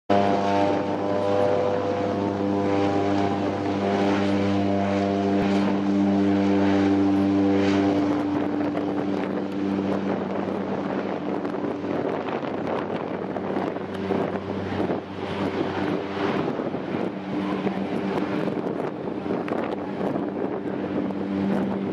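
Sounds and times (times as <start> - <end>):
propeller plane engine drone: 0.1 - 21.9.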